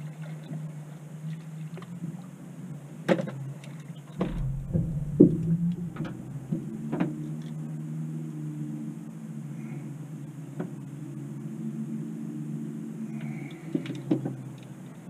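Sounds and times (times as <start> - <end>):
boat motor humming: 4.2 - 7.6.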